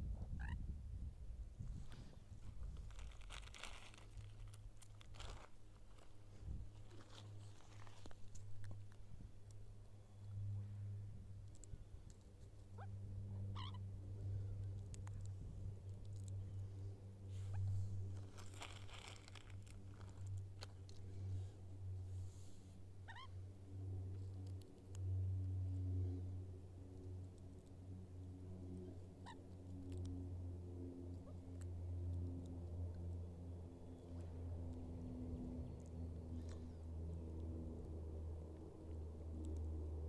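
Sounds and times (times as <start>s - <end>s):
low steady hum: 0.0s - 40.0s
soft crinkling and rustling: 1.6s - 10.4s, 14.5s - 22.7s
magpie calling: 13.5s - 13.8s, 23.1s - 23.4s.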